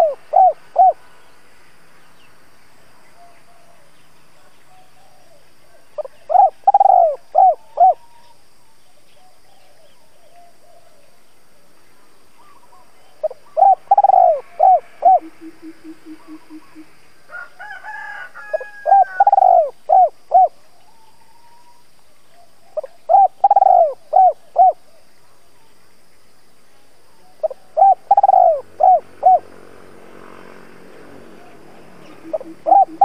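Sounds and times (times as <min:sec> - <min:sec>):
dove cooing: 0:00.0 - 0:01.0, 0:04.7 - 0:08.4, 0:12.4 - 0:21.8, 0:22.4 - 0:25.0, 0:27.3 - 0:33.0.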